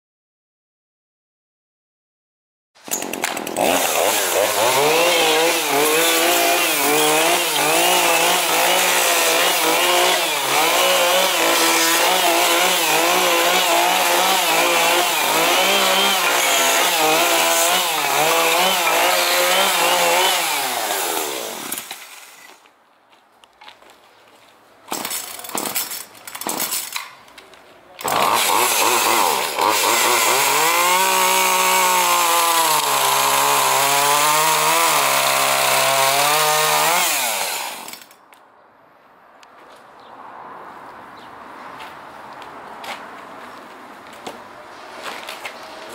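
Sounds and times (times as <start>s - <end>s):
chainsaw cutting log: 2.8s - 22.5s, 28.0s - 38.2s.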